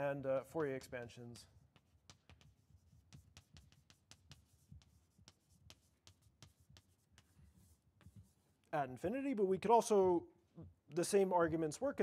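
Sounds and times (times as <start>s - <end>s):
chalk writing on a blackboard: 0.0s - 8.7s.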